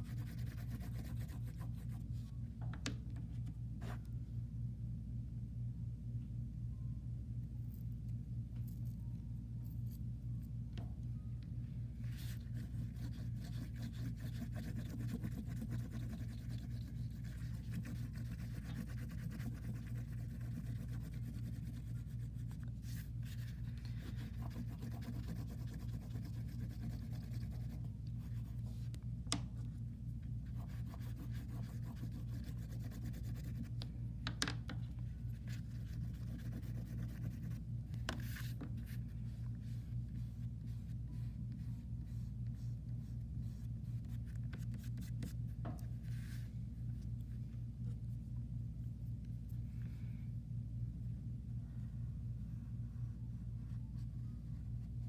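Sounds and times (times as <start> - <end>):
oil pastel scratching on paper: 0.0 - 2.3, 12.0 - 29.0, 30.4 - 33.8, 35.3 - 45.4
low hum: 0.0 - 55.0.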